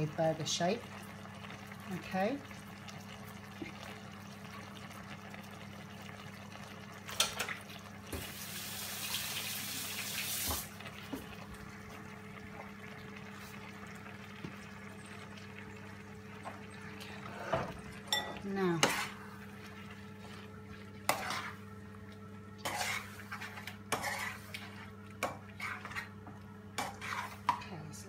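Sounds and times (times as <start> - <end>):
low electrical hum: 0.0 - 28.0
kitchen tap running: 1.4 - 18.8.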